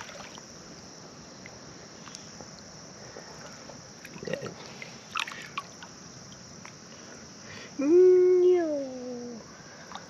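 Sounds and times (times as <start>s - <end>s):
river water sloshing: 0.0s - 1.0s, 3.3s - 6.8s
high insect chirr: 0.0s - 10.0s.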